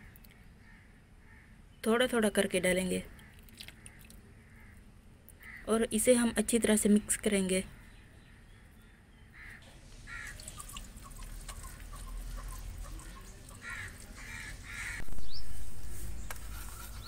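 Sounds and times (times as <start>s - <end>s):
hens clucking: 10.2s - 15.0s.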